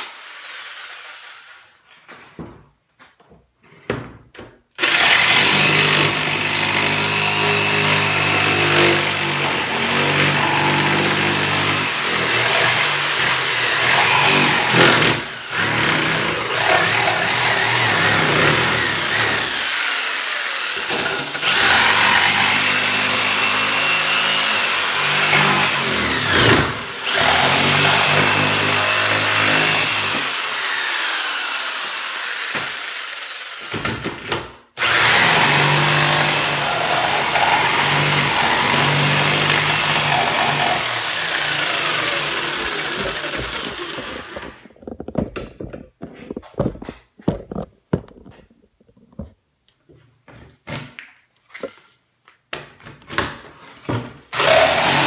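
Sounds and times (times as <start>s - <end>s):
jigsaw cutting plywood: 0.0s - 1.8s, 4.8s - 45.8s, 54.3s - 55.0s.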